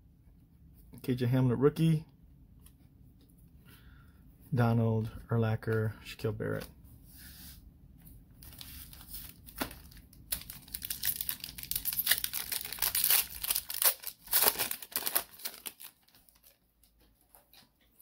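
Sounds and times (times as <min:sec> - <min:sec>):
foil wrapper tearing and crinkling: 0:08.9 - 0:16.6.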